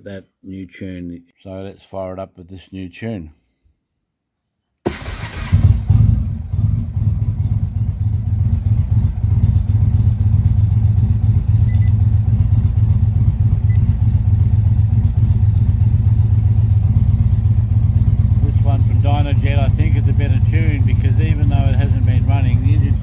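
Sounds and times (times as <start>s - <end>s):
motorcycle engine starting and idling: 4.9s - 23.0s.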